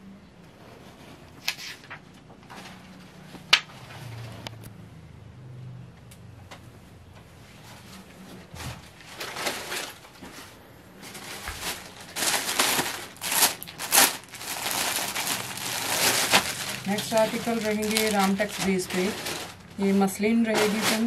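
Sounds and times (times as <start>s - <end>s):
plastic packaging crinkling: 8.8s - 21.0s.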